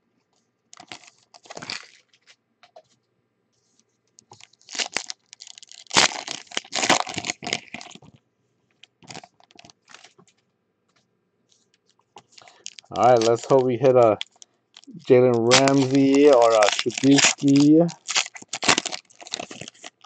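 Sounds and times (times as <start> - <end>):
foil wrappers crinkling: 0.8 - 2.4, 4.3 - 8.1, 9.0 - 10.2, 12.2 - 20.0.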